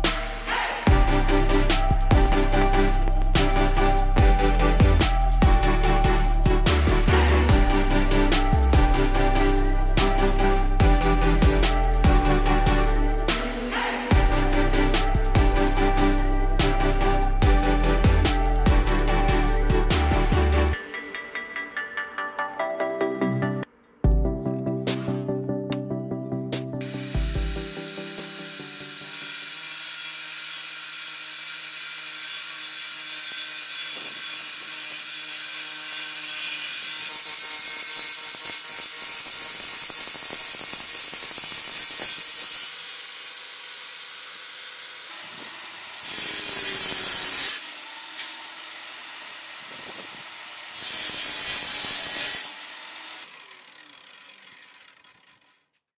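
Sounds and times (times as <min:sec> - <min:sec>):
saw cutting through wood: 0:00.0 - 0:20.8, 0:26.8 - 0:55.9
table saw motor whining: 0:26.8 - 0:55.9.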